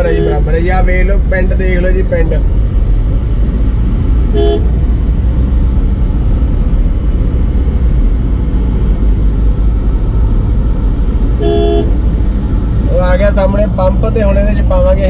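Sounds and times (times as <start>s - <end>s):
car horn toot: 0.0s - 0.5s, 4.3s - 4.8s, 11.4s - 12.0s
car driving rumble from inside: 0.0s - 15.0s.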